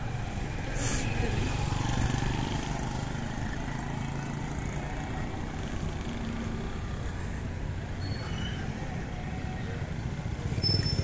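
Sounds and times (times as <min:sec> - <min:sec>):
traffic engines rumbling: 0:00.0 - 0:11.0.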